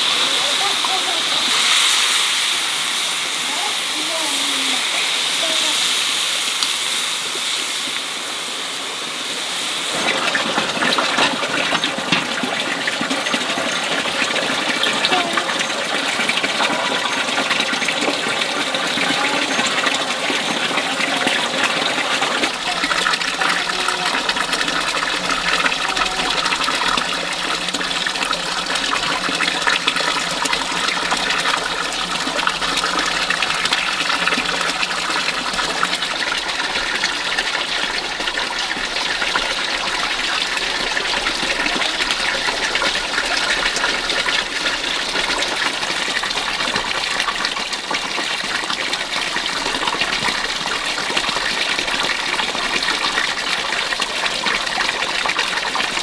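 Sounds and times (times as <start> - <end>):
water running and gushing: 0.0 - 56.0.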